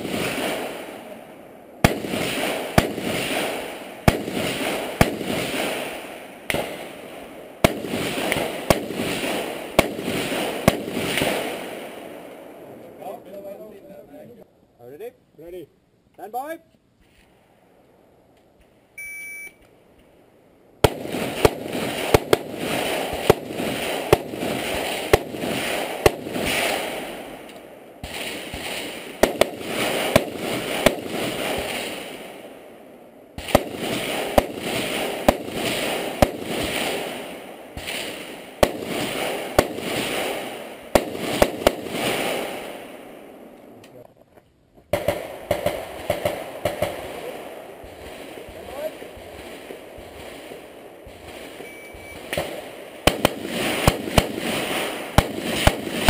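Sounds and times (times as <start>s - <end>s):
rapid rifle shots with echo: 0.0s - 1.2s, 1.8s - 12.8s, 20.8s - 32.7s, 33.4s - 43.5s, 44.9s - 56.0s
electronic shot timer beep: 19.0s - 19.6s, 51.6s - 52.2s.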